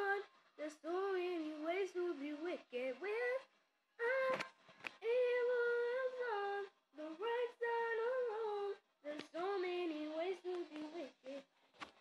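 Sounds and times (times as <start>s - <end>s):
person singing a cappella: 0.0s - 11.5s
breaths: 4.5s - 5.0s.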